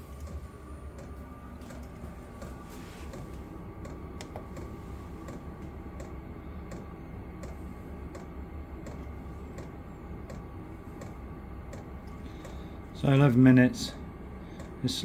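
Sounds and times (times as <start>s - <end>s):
heater fan rumble: 0.0s - 15.0s
fuel pump clicking: 1.7s - 12.6s.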